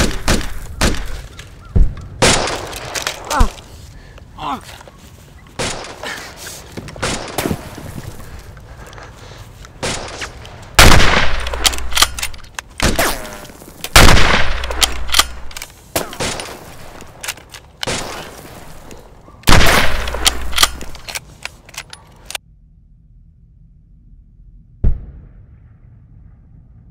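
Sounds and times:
sharp metallic clicks: 10.0 - 13.0, 13.9 - 16.4, 19.4 - 22.4
rifle shots: 10.8 - 12.2, 13.9 - 16.4, 19.5 - 21.0.

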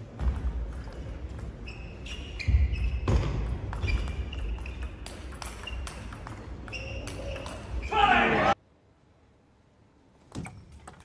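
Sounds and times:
table tennis ball hits: 2.8 - 7.8.

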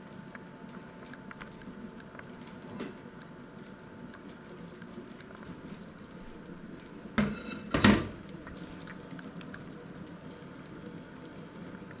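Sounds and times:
metal kitchenware clattering: 7.2 - 8.1.

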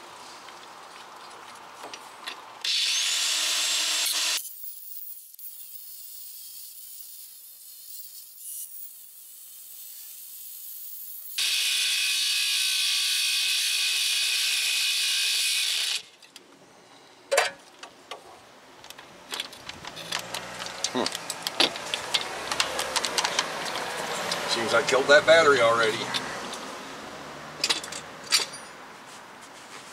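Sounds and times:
angle grinder cutting steel: 2.6 - 16.1
sharp metal clicks: 18.8 - 24.5.

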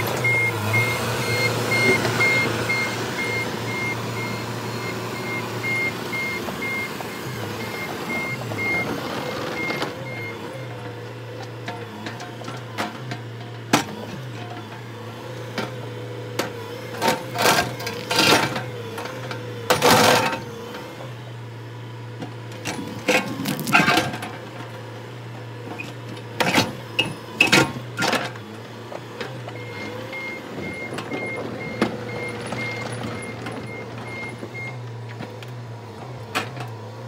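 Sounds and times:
excavator diesel engine running: 0.0 - 37.0.

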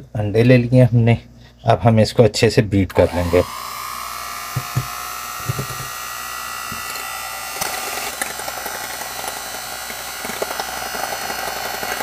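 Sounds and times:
electric hand mixer whining: 2.9 - 12.0.

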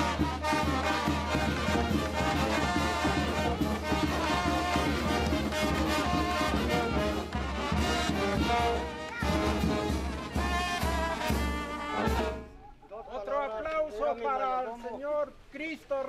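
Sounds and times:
brass band music: 0.0 - 12.7.

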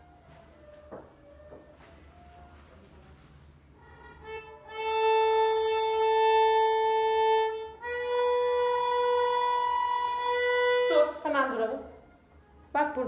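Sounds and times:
violin long bowed notes: 3.8 - 11.7.

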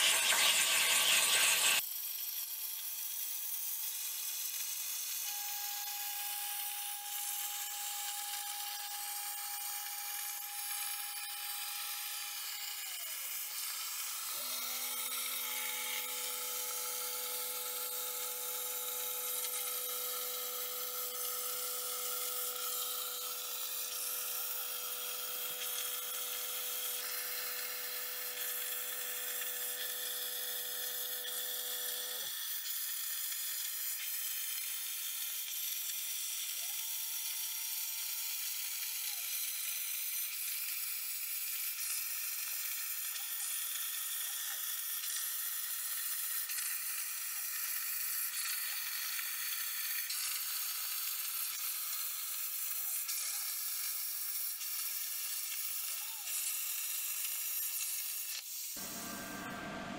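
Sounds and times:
plasma arc hissing: 0.0 - 59.9
motors whining: 5.2 - 32.3, 58.8 - 59.9
steady hum: 58.8 - 59.9.

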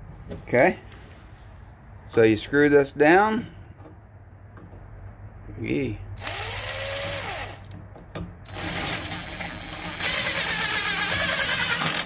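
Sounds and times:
impact driver driving screws: 8.5 - 12.0.

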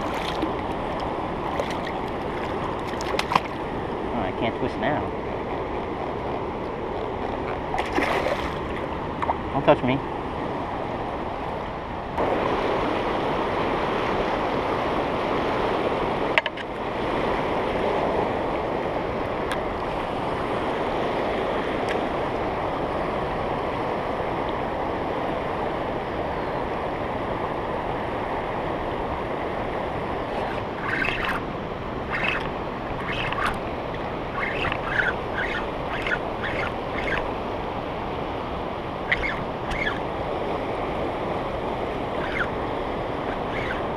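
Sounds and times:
wind on microphone: 0.0 - 43.9
river rushing over rapids: 27.4 - 43.9.

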